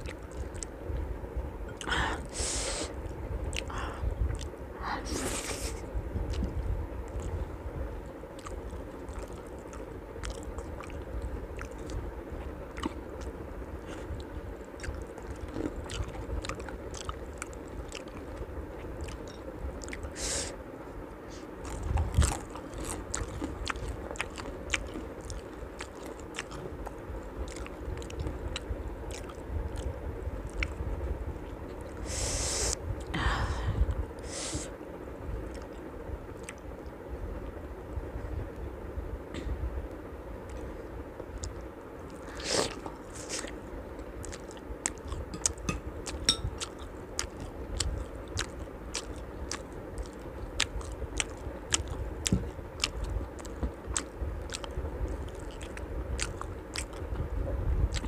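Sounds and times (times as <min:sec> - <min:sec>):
person chewing food: 0:00.0 - 0:00.8, 0:01.7 - 0:12.1, 0:12.7 - 0:20.2, 0:21.3 - 0:30.8, 0:35.4 - 0:36.6, 0:41.3 - 0:57.3.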